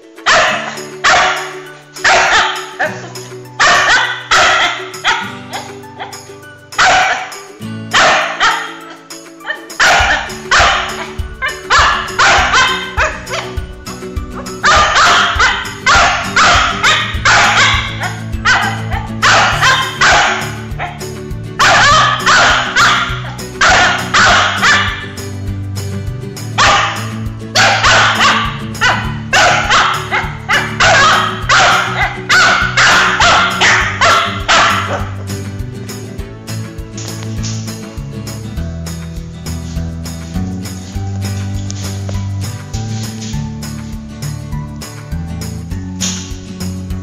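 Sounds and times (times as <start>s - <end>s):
dog barking: 0.2s - 6.1s, 6.8s - 8.9s, 9.5s - 13.6s, 14.4s - 21.0s, 21.6s - 25.1s, 26.6s - 35.2s.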